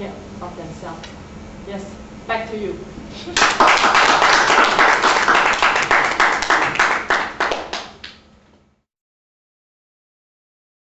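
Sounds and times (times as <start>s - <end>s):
small audience applauding: 3.4s - 8.2s.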